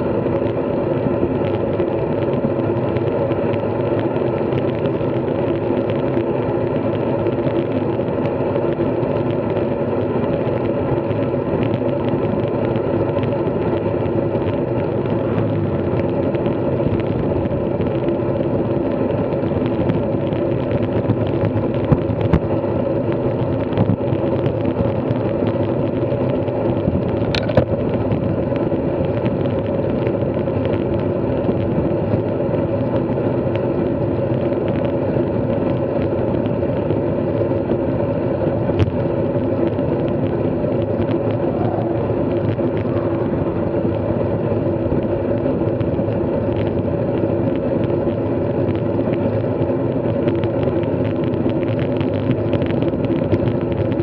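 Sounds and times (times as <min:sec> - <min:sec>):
bike riding hum: 0:00.0 - 0:54.0.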